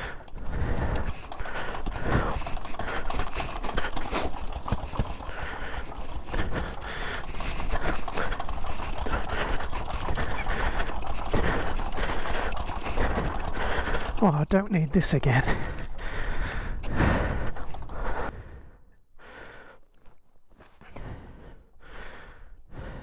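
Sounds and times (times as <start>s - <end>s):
motorcycle engine clattering: 0.0s - 14.2s.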